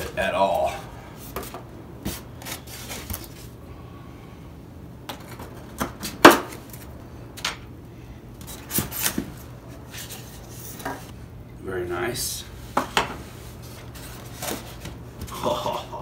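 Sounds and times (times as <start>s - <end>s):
hands handling foam packaging: 1.3s - 3.6s.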